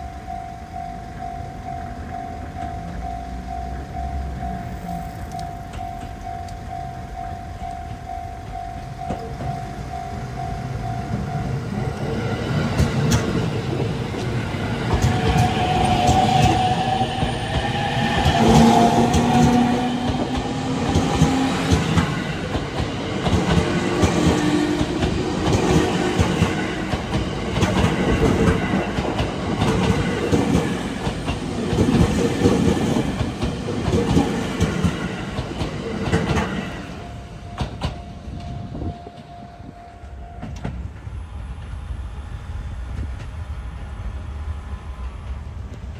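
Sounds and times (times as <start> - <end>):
electric trains passing: 0.0 - 45.9
wheels clacking over rails: 10.6 - 38.1.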